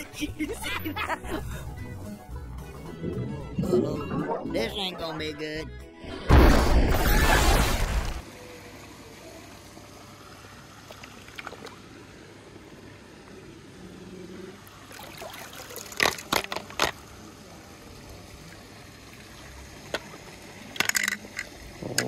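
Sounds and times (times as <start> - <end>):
sharp splashes and knocks: 6.3 - 8.2, 15.0 - 17.0
water trickling and sloshing: 10.5 - 22.0.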